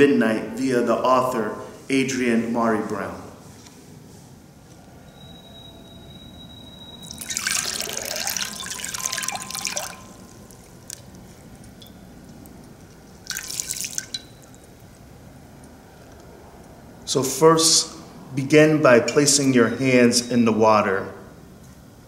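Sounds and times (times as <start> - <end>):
water splashing into glass bowl: 7.0 - 11.1, 13.0 - 14.8.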